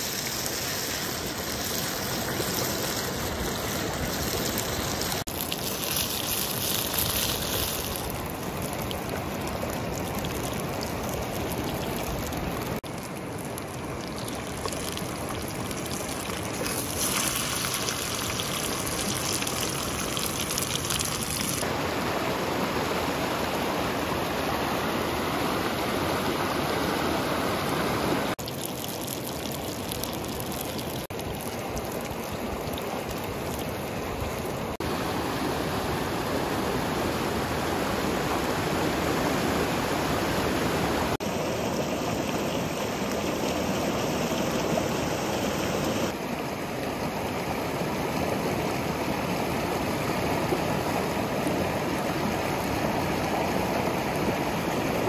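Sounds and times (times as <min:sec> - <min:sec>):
river rushing over rocks: 0:15.2 - 0:28.4, 0:34.0 - 0:55.0.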